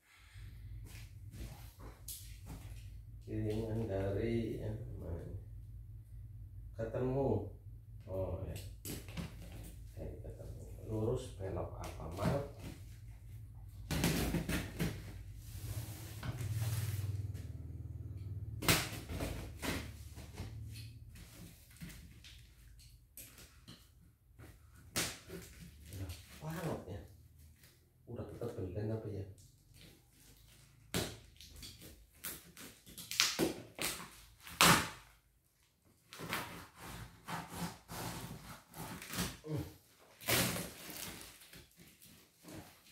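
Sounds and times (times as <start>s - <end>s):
packing tape ripping: 30.9s - 35.1s, 36.1s - 39.5s, 40.1s - 42.9s
box cutter cutting: 36.2s - 39.4s.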